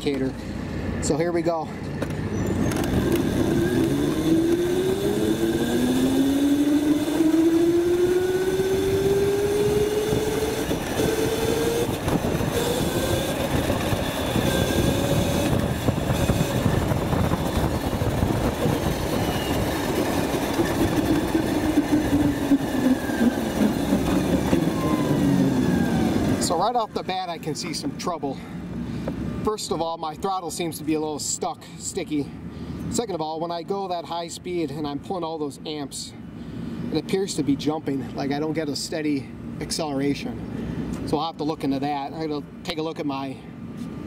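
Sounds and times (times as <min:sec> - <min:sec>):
road and wind noise: 0:00.0 - 0:44.0
electric motor whining: 0:02.6 - 0:26.4.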